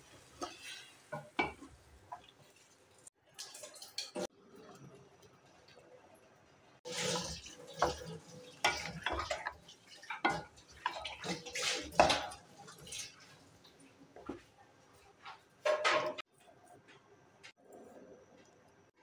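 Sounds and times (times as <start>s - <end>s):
spatula stirring wet food in pot: 0.0s - 5.8s, 6.8s - 15.2s.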